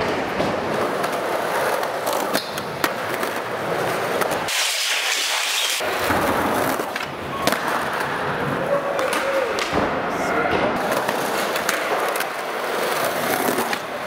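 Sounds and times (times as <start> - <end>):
skateboard wheels rolling on concrete: 0.0 - 14.0
skateboard clacks: 10.6 - 14.0.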